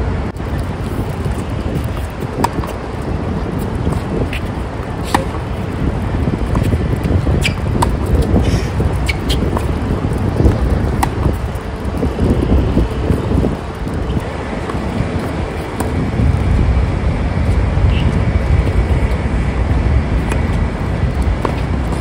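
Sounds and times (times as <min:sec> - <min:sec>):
low rumble: 0:00.0 - 0:22.0
racket striking tennis ball: 0:01.8 - 0:02.9, 0:03.6 - 0:05.6, 0:06.4 - 0:09.8, 0:10.5 - 0:11.4, 0:14.1 - 0:16.0, 0:20.2 - 0:20.6, 0:21.3 - 0:22.0.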